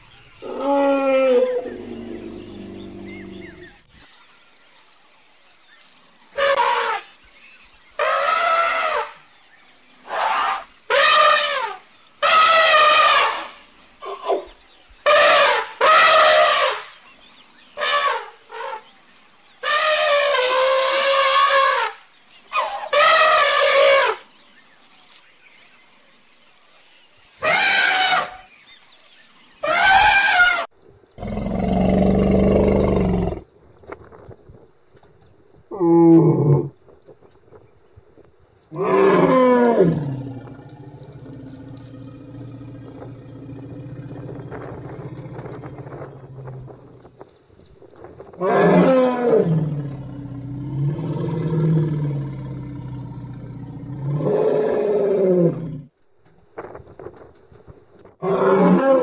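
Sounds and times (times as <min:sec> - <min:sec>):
baby elephant trumpeting: 0:06.4 - 0:07.1, 0:08.0 - 0:09.2, 0:10.1 - 0:14.4, 0:15.1 - 0:16.8, 0:19.6 - 0:24.2, 0:27.4 - 0:28.4, 0:29.6 - 0:30.7.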